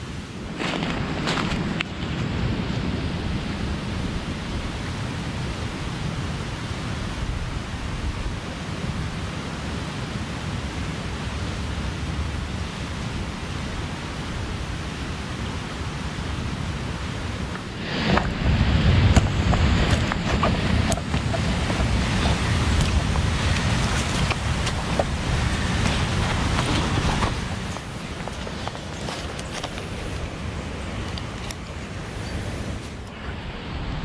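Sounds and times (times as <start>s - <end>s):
wind blowing: 0.0s - 34.0s
wind rumble on microphone: 0.0s - 34.0s
rucksack strap unbuckling: 19.9s - 30.0s.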